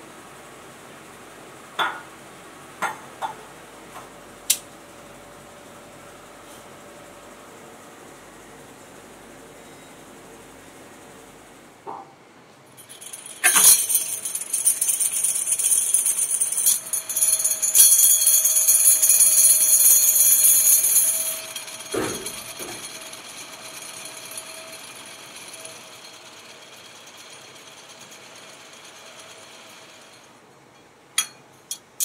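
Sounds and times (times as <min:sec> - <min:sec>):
vibratory bowl rattling: 0:12.8 - 0:30.3.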